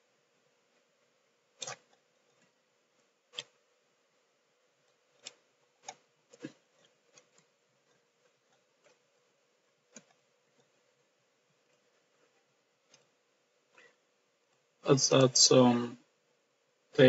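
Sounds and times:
faint steady hum: 0:00.0 - 0:17.0
quiet background hiss: 0:00.0 - 0:17.0
computer controls clicking: 0:01.6 - 0:03.6, 0:04.8 - 0:09.1, 0:09.9 - 0:10.8, 0:11.6 - 0:13.2.

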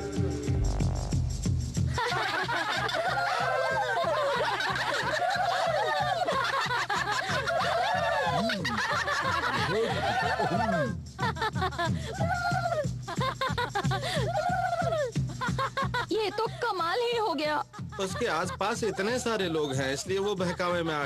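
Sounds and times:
low drum beat: 0:00.0 - 0:21.0
cartoon voices whooping and laughing: 0:02.2 - 0:10.9, 0:12.0 - 0:13.0, 0:14.0 - 0:15.2, 0:18.0 - 0:20.3.

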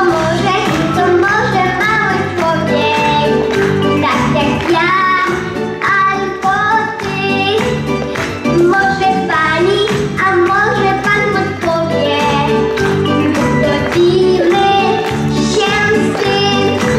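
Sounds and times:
boy singing into a microphone: 0:00.0 - 0:03.4, 0:08.6 - 0:12.5, 0:13.6 - 0:16.9
backing music with steady beat: 0:00.0 - 0:16.9.

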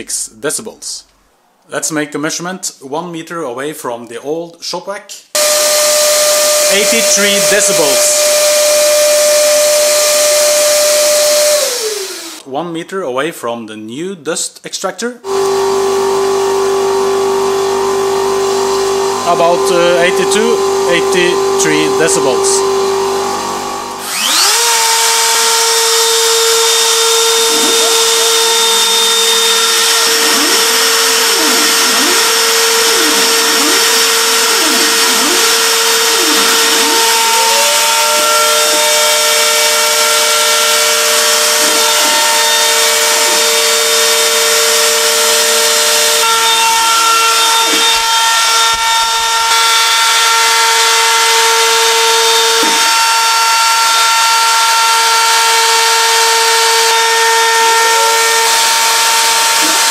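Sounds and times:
router spindle whine: 0:05.4 - 0:12.4, 0:15.3 - 0:59.9
stepper motors sweeping pitch: 0:05.4 - 0:12.4, 0:15.3 - 0:46.6.

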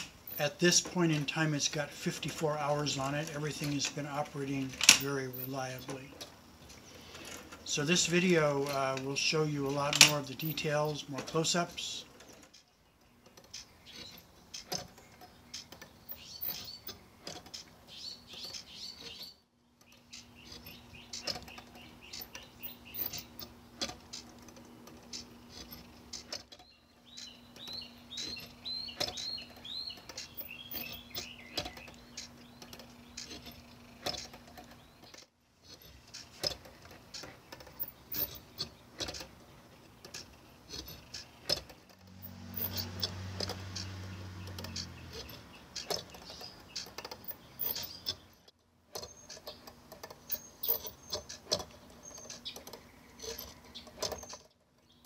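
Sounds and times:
gear motor hum: 0:00.0 - 0:55.0
short high squeaks: 0:40.2 - 0:48.4, 0:49.0 - 0:54.5.

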